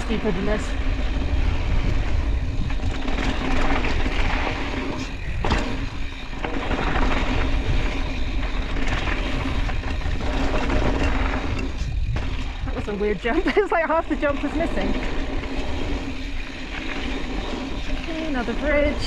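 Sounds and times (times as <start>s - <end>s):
bike rattling: 0.0s - 19.0s
tyres rolling on gravel: 0.0s - 19.0s
wind rumble on microphone: 0.0s - 19.0s.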